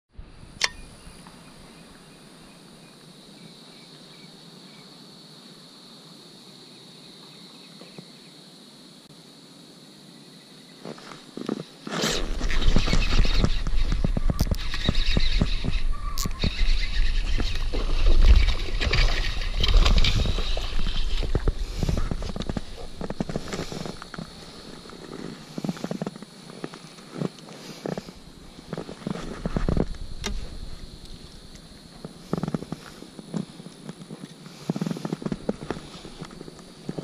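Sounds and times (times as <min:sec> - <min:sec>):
microphone handling noise: 0:11.4 - 0:26.4, 0:27.1 - 0:34.0
wind buffeting microphone: 0:12.4 - 0:24.9.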